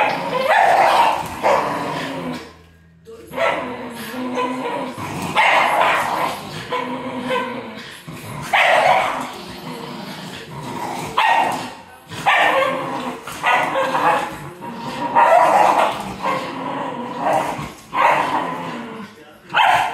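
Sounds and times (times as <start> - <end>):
dogs barking: 0.0 - 2.2, 3.3 - 7.8, 8.5 - 9.3, 11.2 - 14.3, 15.1 - 16.6, 17.2 - 18.5, 19.5 - 19.9
dogs growling: 0.0 - 19.9.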